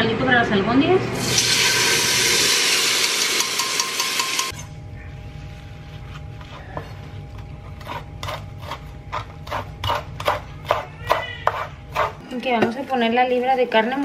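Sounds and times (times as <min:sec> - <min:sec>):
sauce sizzling in hot oil: 0:01.2 - 0:04.5
low steady hum: 0:04.4 - 0:14.0.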